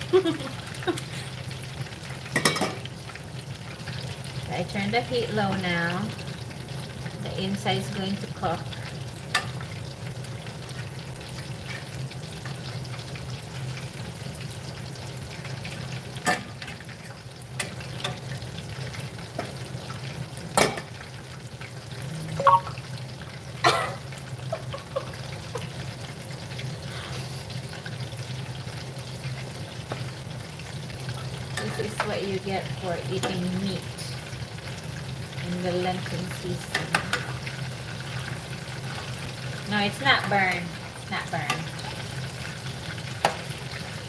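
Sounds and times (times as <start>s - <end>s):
chicken deep-frying in oil: 0.0s - 44.0s
sharp pops of frying oil: 2.3s - 2.9s, 9.3s - 9.6s, 16.2s - 16.8s, 20.5s - 21.0s, 43.2s - 43.5s.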